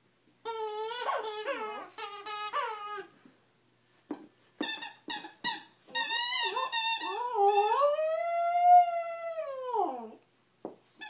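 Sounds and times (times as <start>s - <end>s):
small dog howling and yelping: 6.5s - 10.2s.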